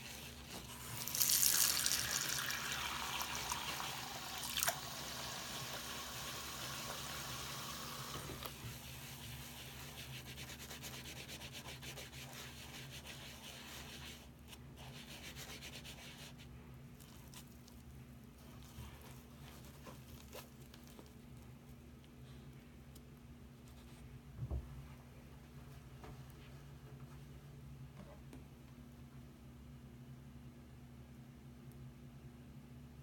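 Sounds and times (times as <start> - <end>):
tap water running into sink: 0.8 - 8.6
wet sponges squishing: 17.0 - 21.2.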